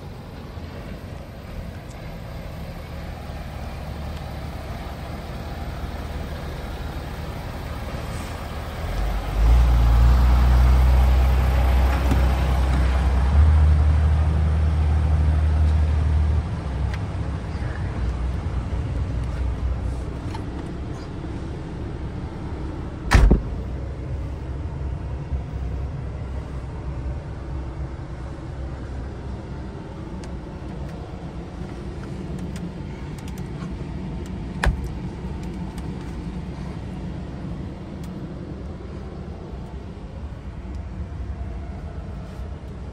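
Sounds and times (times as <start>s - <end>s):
diesel engine droning: 0.0s - 42.9s.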